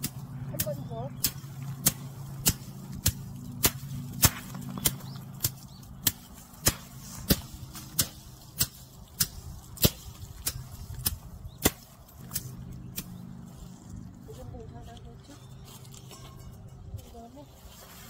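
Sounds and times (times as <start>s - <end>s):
stick beating plants: 0.0s - 17.9s
low steady hum: 0.0s - 18.0s.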